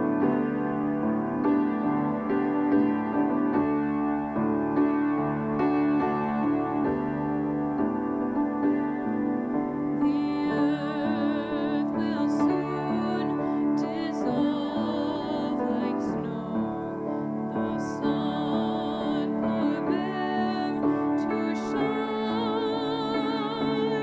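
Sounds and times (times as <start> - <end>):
piano: 0.0 - 24.0
woman singing with vibrato: 10.0 - 24.0.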